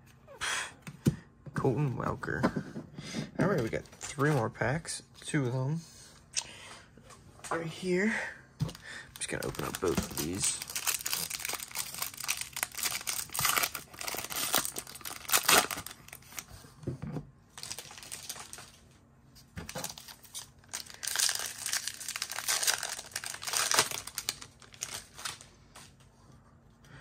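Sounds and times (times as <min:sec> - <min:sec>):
foil wrappers tearing and crinkling: 0:09.2 - 0:16.5, 0:17.5 - 0:18.8, 0:19.7 - 0:25.5.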